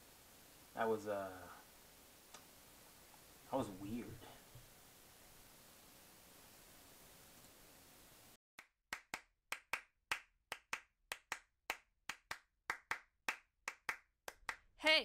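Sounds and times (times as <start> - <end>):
faint steady hiss: 0.0 - 8.4
person clapping hands: 8.6 - 14.7.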